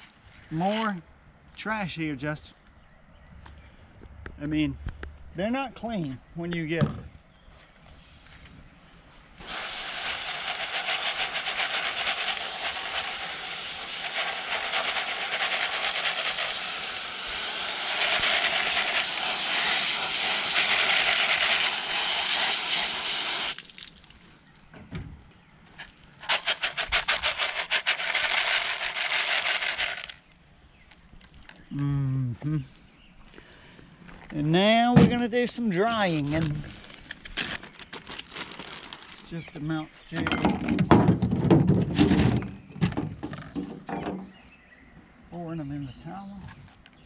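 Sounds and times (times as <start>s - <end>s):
colander of pellets shaken: 9.4s - 23.9s, 26.2s - 30.2s
hose nozzle spraying water: 9.4s - 24.1s, 26.2s - 30.2s.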